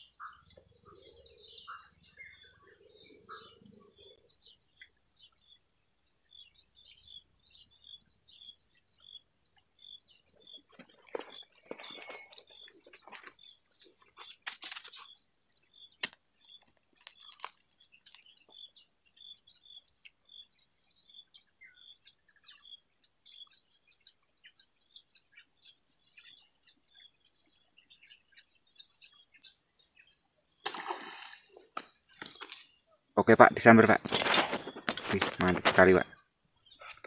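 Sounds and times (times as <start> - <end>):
short chirping calls: 22.5 - 37.0
high insect buzz: 23.9 - 37.0
fish splash: 30.6 - 31.6.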